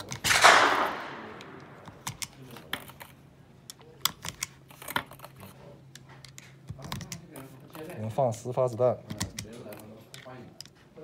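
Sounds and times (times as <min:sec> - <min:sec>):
echo of loud bang: 0:00.3 - 0:01.8.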